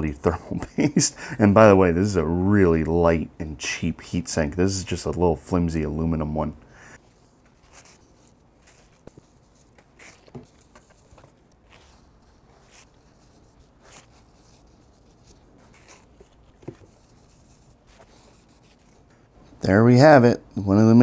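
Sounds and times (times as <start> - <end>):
hands rubbing and scratching: 7.0 - 19.3.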